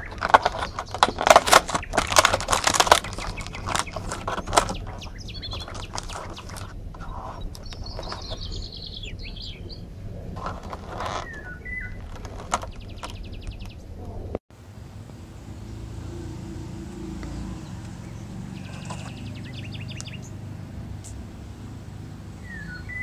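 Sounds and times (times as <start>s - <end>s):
plastic lid crackling: 0.0s - 8.6s, 10.4s - 13.7s
bird chirping: 0.0s - 14.1s, 15.4s - 23.0s.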